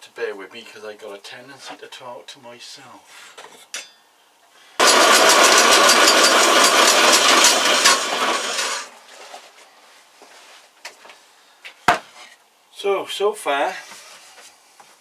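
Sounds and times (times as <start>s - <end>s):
power saw cutting wood: 4.8s - 8.9s.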